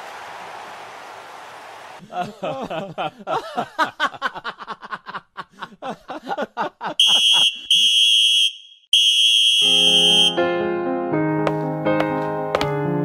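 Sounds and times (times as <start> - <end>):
referee whistle blasts: 7.0 - 10.4
piano music: 9.8 - 13.0.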